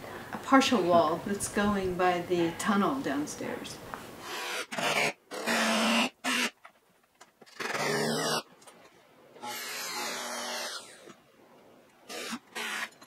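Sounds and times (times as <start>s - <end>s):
power drill driving screws: 4.2s - 6.5s, 7.5s - 8.4s, 9.4s - 11.1s, 12.1s - 13.0s.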